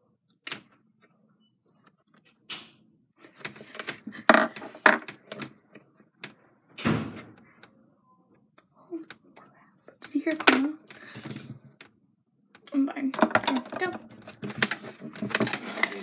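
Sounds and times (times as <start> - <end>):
makeup items clicking on table: 9.9 - 11.9.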